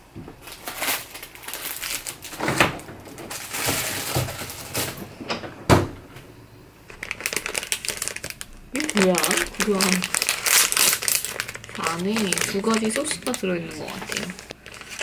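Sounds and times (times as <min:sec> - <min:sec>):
drawer contents rustling: 0:00.4 - 0:06.0
drawer banging shut: 0:02.4 - 0:06.1.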